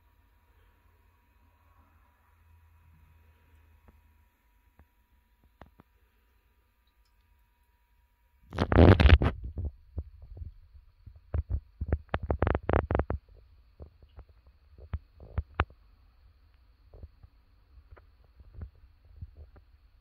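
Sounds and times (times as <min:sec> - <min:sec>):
microphone handling rustle: 0:08.5 - 0:10.5.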